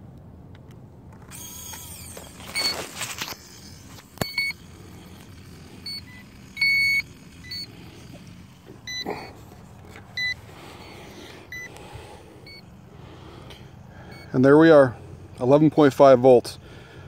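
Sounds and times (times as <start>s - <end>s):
short high electronic beeps: 3.6s - 4.7s, 5.8s - 7.7s.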